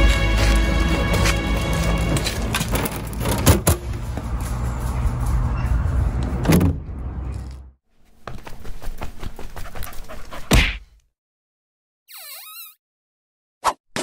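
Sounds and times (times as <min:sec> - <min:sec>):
background music: 0:00.0 - 0:06.4.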